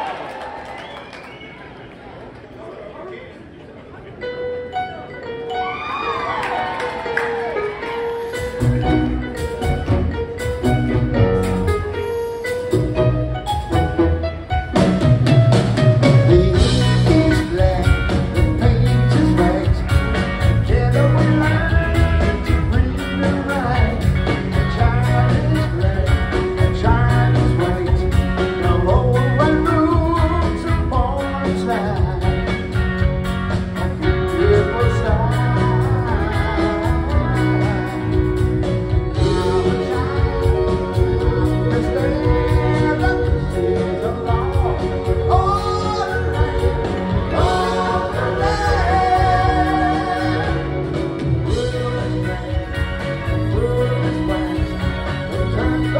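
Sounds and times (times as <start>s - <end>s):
live rock band playing: 4.2s - 55.9s
man singing: 16.3s - 32.7s, 33.5s - 55.9s.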